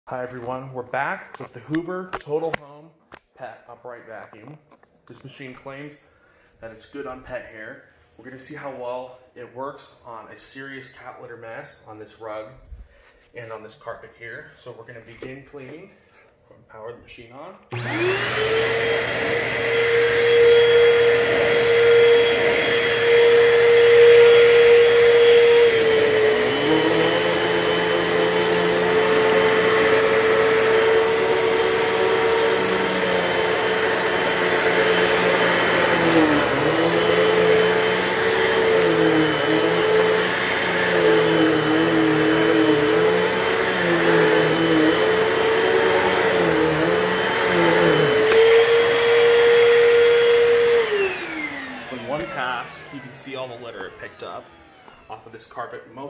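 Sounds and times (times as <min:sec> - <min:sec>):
vacuum cleaner whining: 0:17.7 - 0:56.0.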